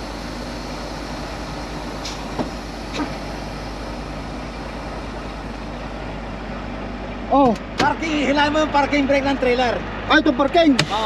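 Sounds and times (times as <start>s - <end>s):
truck diesel engine running: 0.0s - 11.0s.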